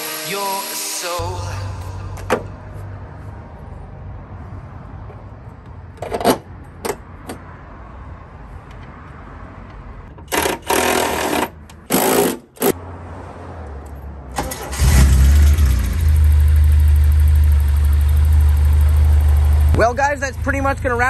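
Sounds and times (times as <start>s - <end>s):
cordless drill driving screws: 10.3s - 12.7s
car engine cranking and idling: 13.9s - 21.0s.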